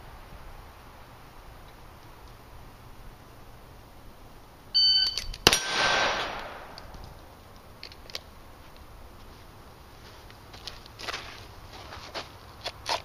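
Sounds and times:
electronic shot timer beep: 4.8s - 5.3s
pistol shot: 5.4s - 6.8s.

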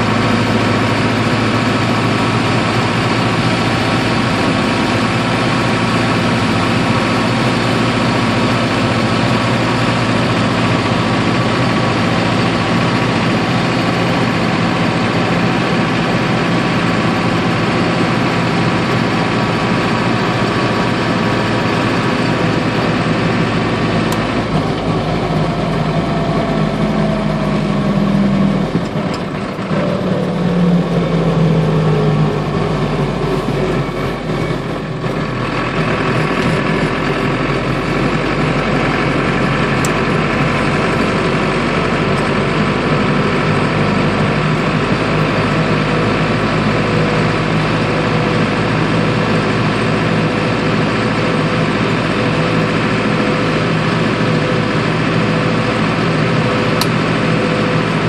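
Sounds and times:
diesel engine running from inside cab: 0.0s - 58.0s.

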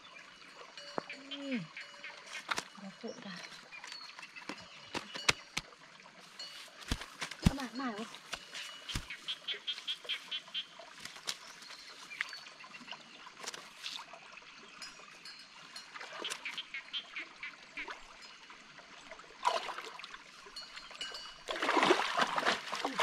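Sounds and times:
stream water trickling: 0.0s - 23.0s
person wading and splashing: 6.2s - 12.3s, 19.4s - 23.0s.

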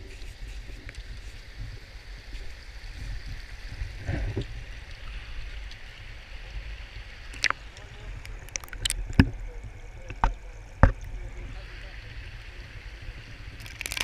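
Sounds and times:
wind rumbling on microphone: 0.0s - 14.0s
stream rushing over rocks: 13.6s - 14.0s.

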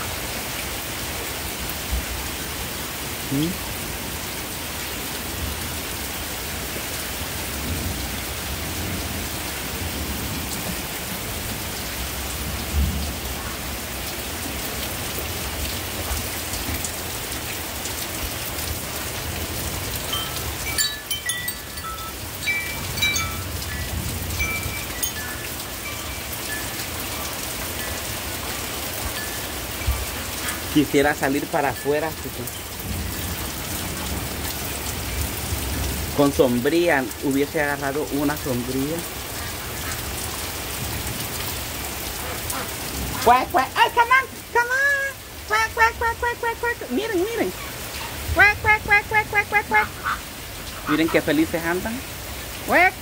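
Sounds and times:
heavy rain pouring: 0.0s - 53.0s
metal wind chime notes: 20.1s - 28.0s.

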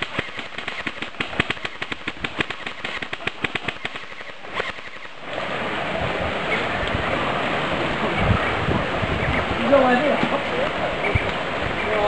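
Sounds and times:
airsoft guns firing rapidly: 0.0s - 4.8s
steady rushing hiss: 0.0s - 12.0s.

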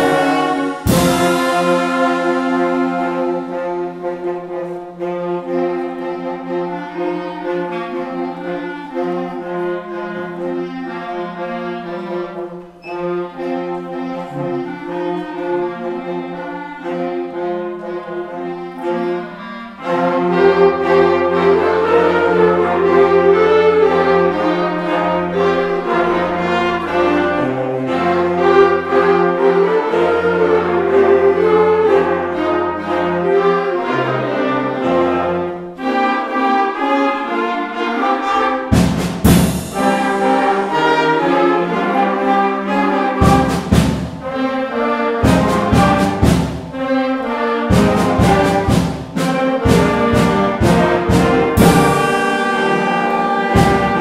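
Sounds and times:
concert band playing: 0.0s - 7.3s, 37.8s - 54.0s.

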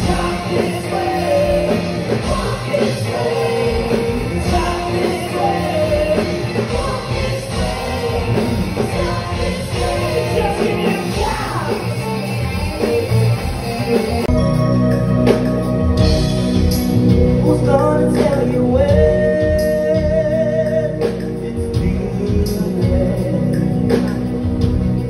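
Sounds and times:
lead singer vocals: 0.0s - 12.1s, 17.4s - 24.0s
bass guitar: 0.0s - 25.0s
electric guitars: 0.0s - 25.0s.

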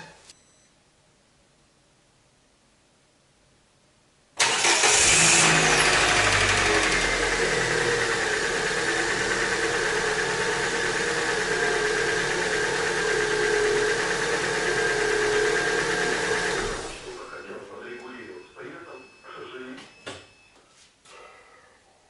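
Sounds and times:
car engine starting and idling: 4.4s - 17.4s.

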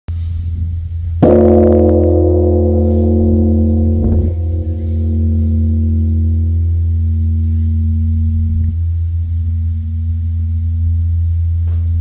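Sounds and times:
deep hum: 0.1s - 12.0s
large bell struck and ringing: 1.2s - 11.6s.

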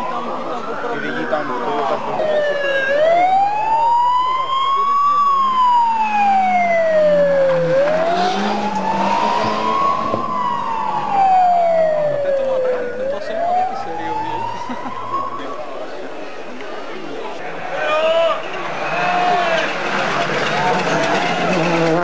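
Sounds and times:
siren wailing: 0.0s - 16.0s
faint car engine: 0.0s - 22.0s.

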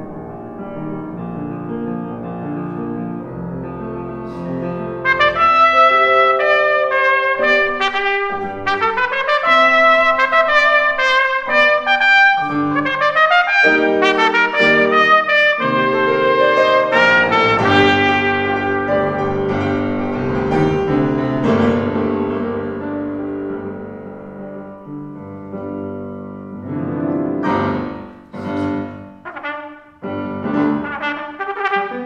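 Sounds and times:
grand piano: 0.0s - 32.0s
trumpet playing: 4.3s - 22.4s, 27.7s - 32.0s.

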